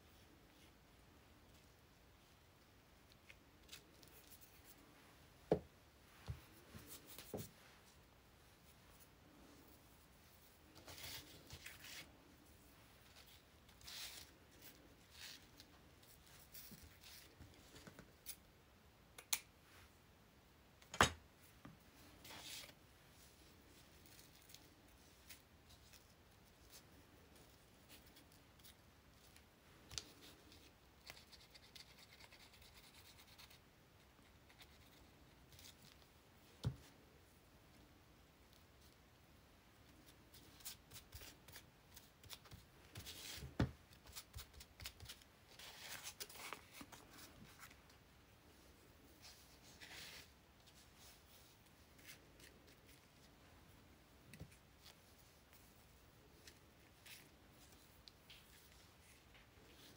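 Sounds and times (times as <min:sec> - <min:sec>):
paper and lace rustling: 0:06.0 - 0:18.4, 0:22.0 - 0:32.4, 0:40.0 - 0:59.9.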